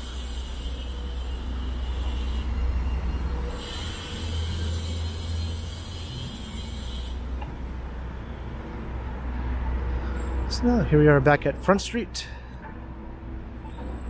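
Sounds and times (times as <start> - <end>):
traffic rumble: 0.0 - 14.0
tyres hissing on wet road: 3.5 - 7.3.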